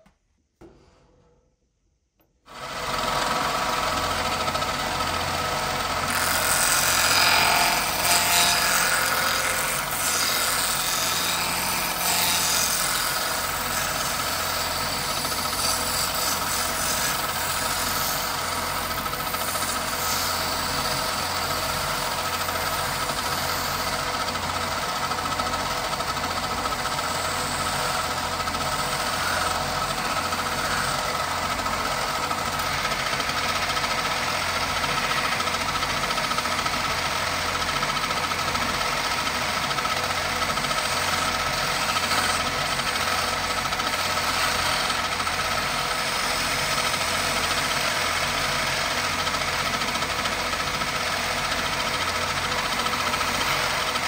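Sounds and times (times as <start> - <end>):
wood lathe running: 2.5 - 54.0
chisel scraping spinning wood: 4.2 - 45.4.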